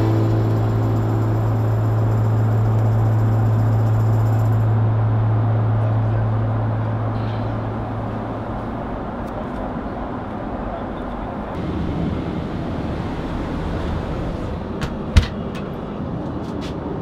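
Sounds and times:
airliner cabin roar: 0:00.0 - 0:17.0.

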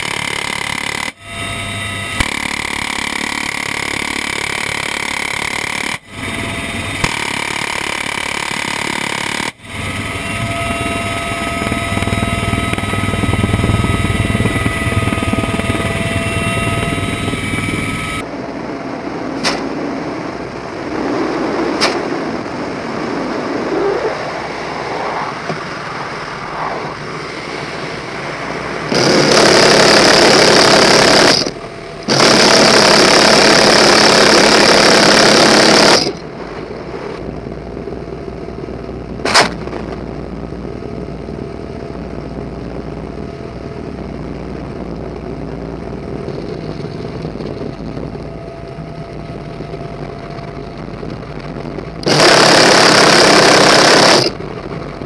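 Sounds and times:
minigun firing: 0:00.0 - 0:18.2, 0:28.8 - 0:36.3, 0:52.0 - 0:54.4
helicopter engine and rotor drone: 0:00.0 - 0:55.0.

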